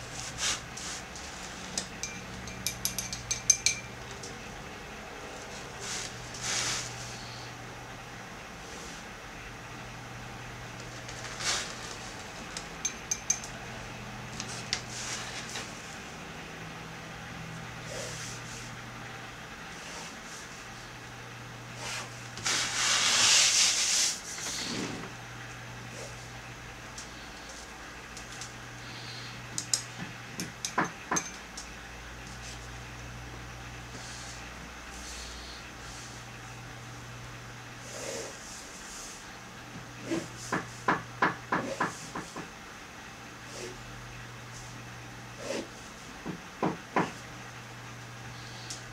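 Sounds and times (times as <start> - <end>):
steady low hum: 0.0 - 48.9
pen clinking against ink pot: 2.0 - 3.9, 12.8 - 13.5.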